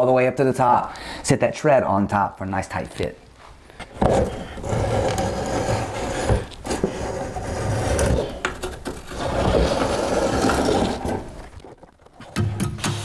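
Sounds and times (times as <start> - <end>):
marking gauge scraping wood: 4.0 - 11.5.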